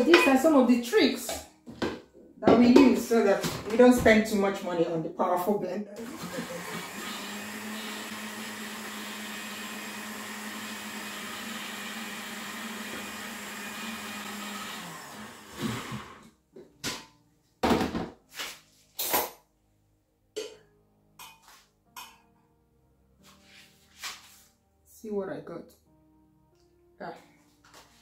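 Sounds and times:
blender running: 6.0s - 16.3s.

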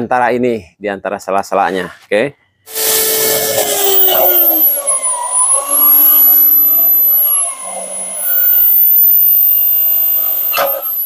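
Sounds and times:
electric drill boring plastic pipe: 2.7s - 11.0s.

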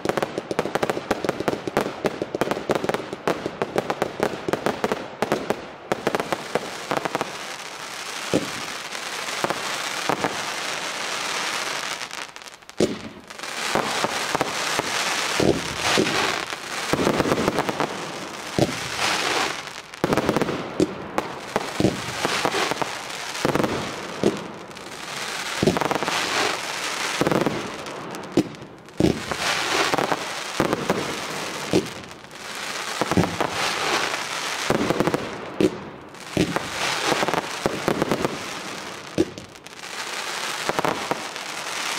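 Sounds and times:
firework bangs: 0.0s - 41.9s.

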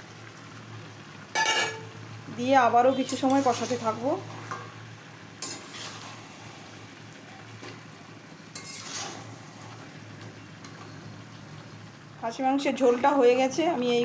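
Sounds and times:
food sizzling in a pan: 0.0s - 14.0s
metal spatula scraping pan: 1.4s - 1.9s, 3.0s - 4.6s, 5.4s - 6.3s, 8.5s - 9.8s.

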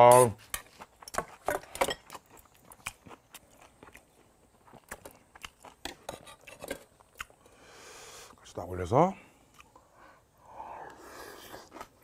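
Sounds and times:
person chewing crunchy food: 0.6s - 7.6s, 10.8s - 12.0s.

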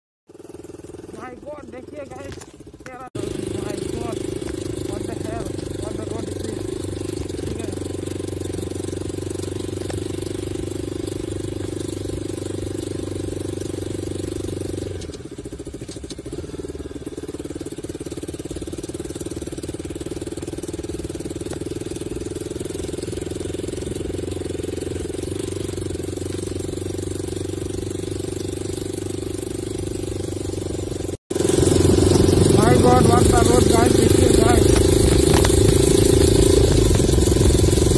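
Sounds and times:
motorcycle engine running: 0.3s - 37.9s.

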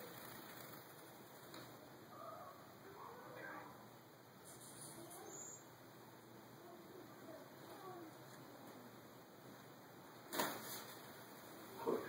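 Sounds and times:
faint high bird call: 4.4s - 5.8s.

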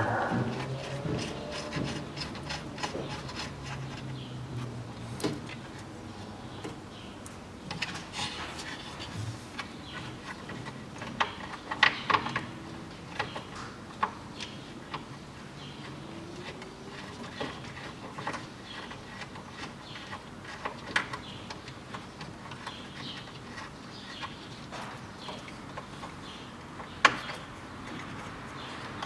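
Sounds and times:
plastic and metal clicks and knocks: 9.6s - 15.2s, 15.8s - 28.2s.

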